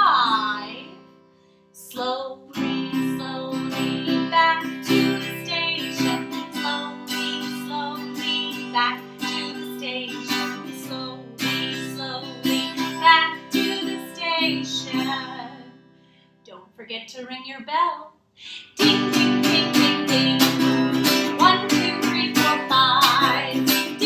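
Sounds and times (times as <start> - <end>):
woman singing: 0.0 - 1.1, 1.8 - 15.8, 16.5 - 24.0
strummed acoustic guitar: 2.6 - 15.9, 18.8 - 24.0.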